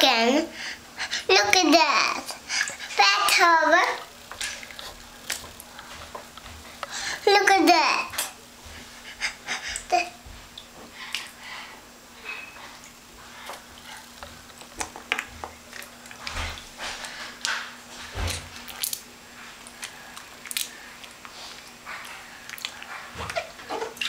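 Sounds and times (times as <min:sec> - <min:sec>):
bathwater splashing: 0:01.6 - 0:07.2.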